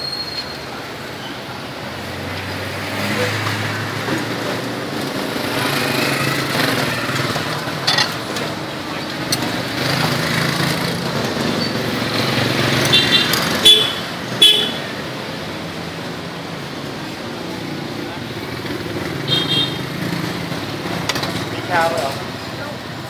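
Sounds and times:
passing motorbikes and cars: 0:00.0 - 0:23.0
horn toots: 0:12.8 - 0:14.9, 0:19.2 - 0:19.8.

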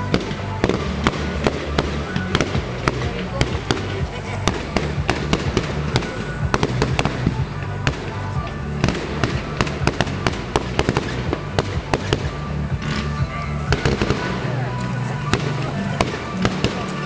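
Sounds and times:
background music: 0:00.0 - 0:17.0
fireworks bangs and crackles: 0:00.0 - 0:17.0.

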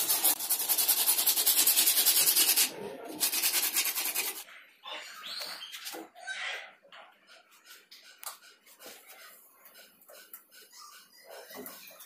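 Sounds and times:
hacksaw sawing plastic pipe: 0:00.0 - 0:04.4.

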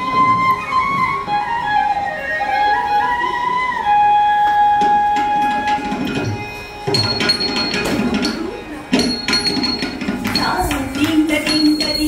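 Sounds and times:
flute melody: 0:00.0 - 0:09.8.

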